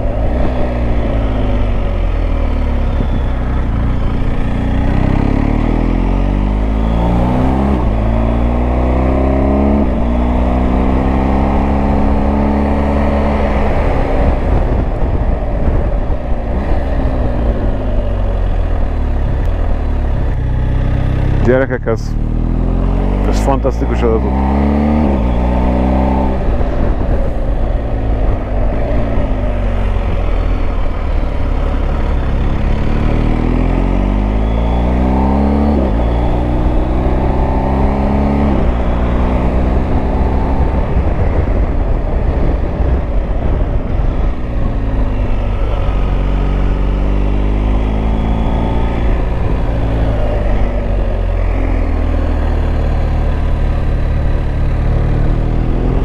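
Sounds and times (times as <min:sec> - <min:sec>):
motorcycle engine changing gears: 0:00.0 - 0:56.0.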